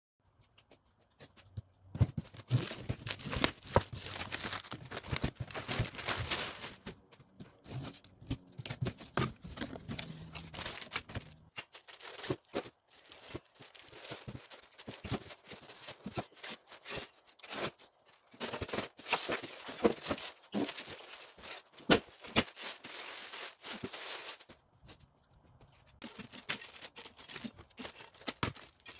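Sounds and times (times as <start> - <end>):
plastic wrap crinkling: 2.1 - 7.0, 7.6 - 24.6, 26.0 - 28.9.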